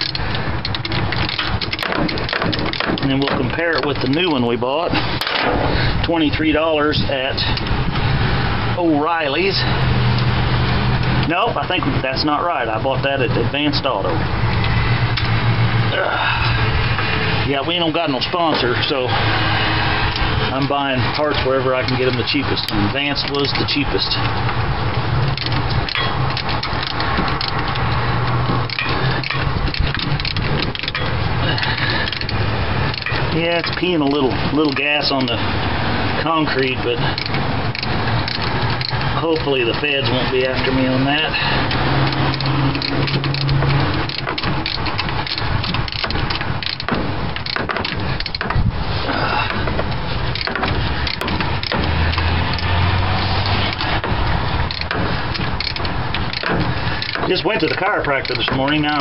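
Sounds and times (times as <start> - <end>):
hand ratchet clicking: 0.0 - 4.4, 17.7 - 35.5, 36.1 - 59.0.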